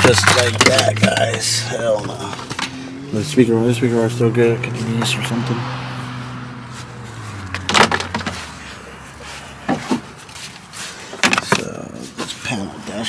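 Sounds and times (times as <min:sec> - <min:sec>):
objects knocking and clunking: 0:00.0 - 0:03.0, 0:07.4 - 0:08.7, 0:09.6 - 0:12.3.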